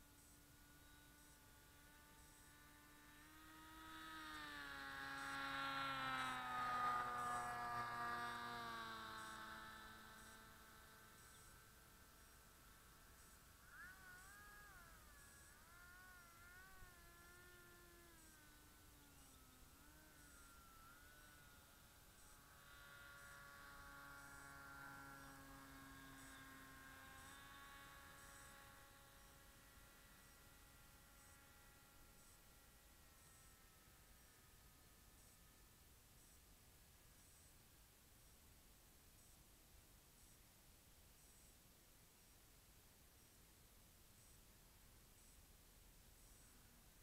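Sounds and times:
model plane motor passing by: 0.0 - 36.6, 37.2 - 37.5
faint steady hum: 0.0 - 47.0.

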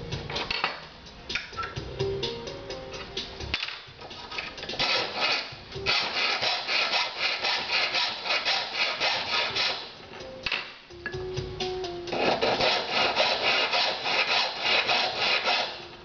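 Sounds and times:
hand file scraping metal rod: 4.2 - 10.0, 12.1 - 15.9.

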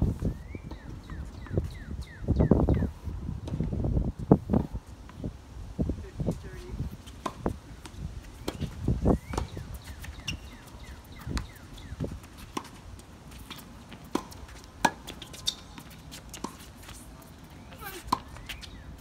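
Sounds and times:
footsteps on hard court: 6.4 - 18.8
rackets striking tennis ball: 8.4 - 17.0
ball bouncing: 11.1 - 11.6.

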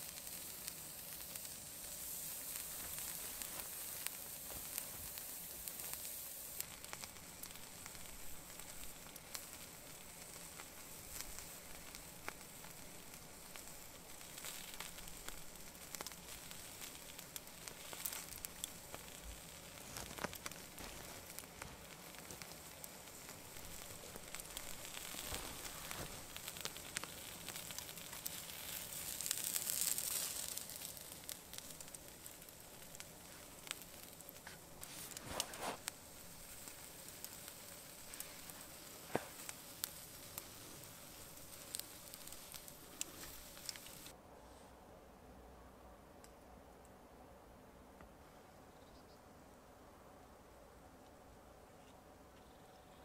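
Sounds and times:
soft crackling and hissing: 0.0 - 53.0
small clicks: 41.7 - 44.1.

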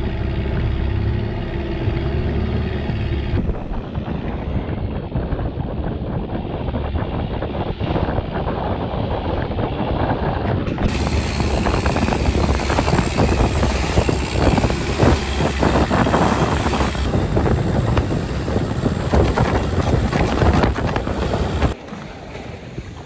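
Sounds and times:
boat engine running: 0.0 - 5.6, 10.8 - 21.8
wind buffeting microphone: 0.0 - 23.0.

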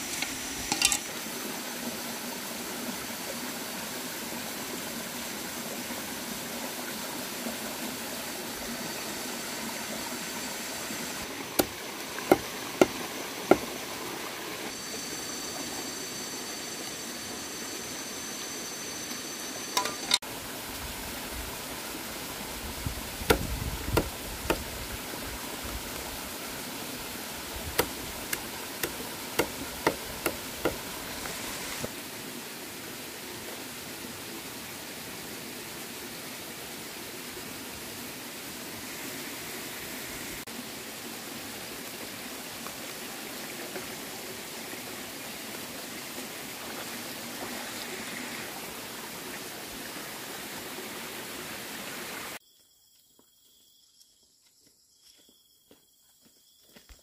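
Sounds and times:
stream running over rocks: 0.0 - 52.4
thin high whine: 14.7 - 20.2.

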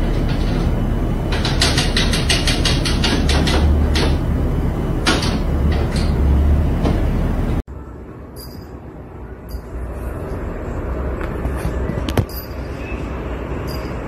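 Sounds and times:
air conditioner hum: 0.0 - 14.0.

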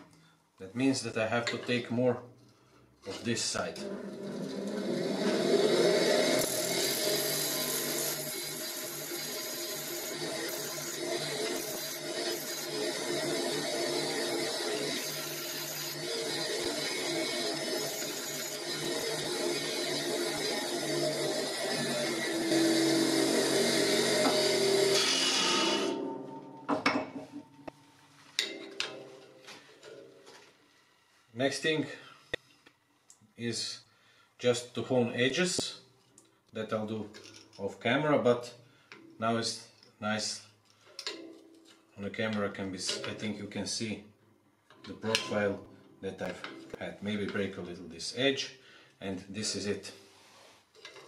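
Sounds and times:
bench grinder humming: 3.9 - 26.0.

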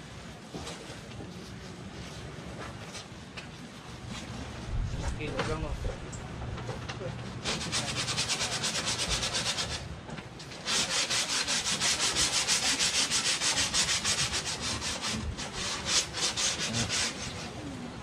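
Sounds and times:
paintbrush scrubbing boat hull: 7.4 - 9.9, 10.5 - 17.8.

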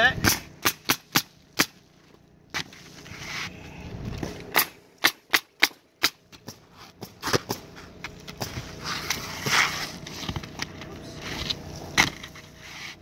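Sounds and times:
nail gun firing: 0.2 - 1.8, 4.5 - 6.3.

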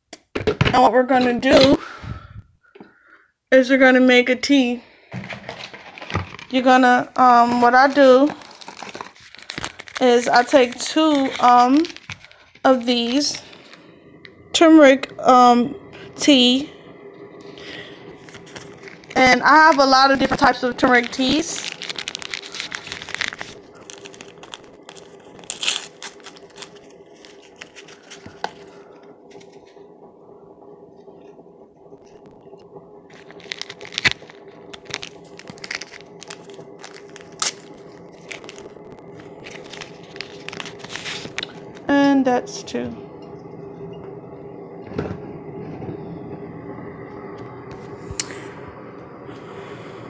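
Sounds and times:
steady hum: 0.0 - 50.0
paper rustle: 5.1 - 6.6, 7.5 - 13.7, 18.2 - 29.7, 33.1 - 41.6.

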